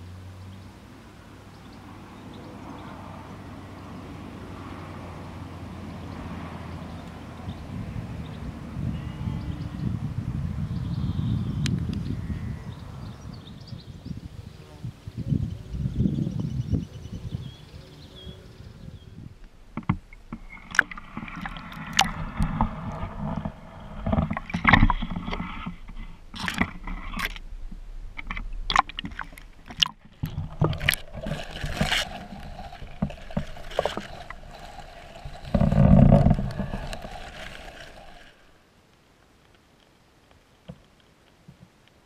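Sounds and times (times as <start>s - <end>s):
water sloshing and splashing: 19.4s - 38.6s
rush of water: 19.4s - 41.7s
sharp knocks and clicks: 19.7s - 27.4s.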